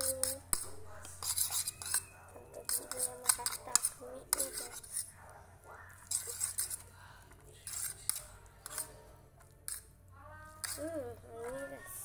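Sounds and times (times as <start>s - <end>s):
fork scraping a ceramic plate: 0.0s - 5.2s, 6.0s - 6.9s, 7.6s - 9.9s, 10.6s - 11.6s.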